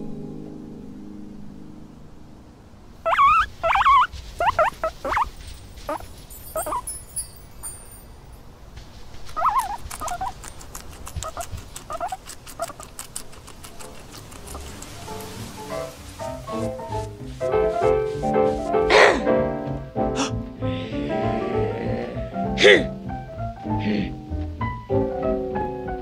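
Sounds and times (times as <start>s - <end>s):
guinea pig squeaking: 3.0s - 7.8s, 9.2s - 16.5s.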